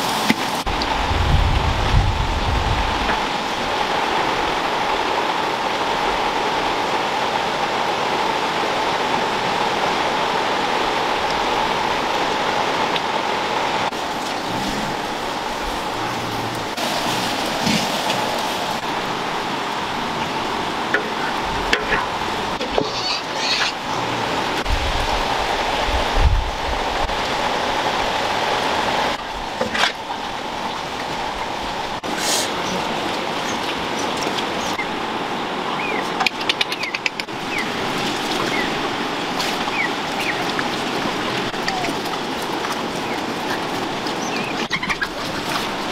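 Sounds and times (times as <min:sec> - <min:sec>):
steady rushing noise: 0:00.0 - 0:22.6.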